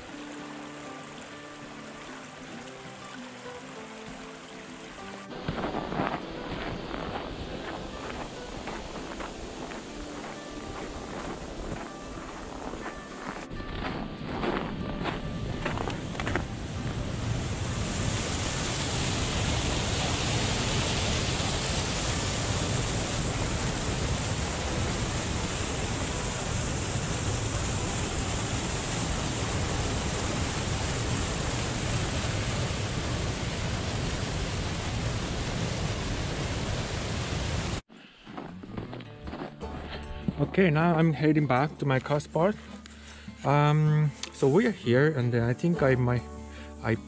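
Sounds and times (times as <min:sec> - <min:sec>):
water pouring over a weir: 0:00.0 - 0:11.9.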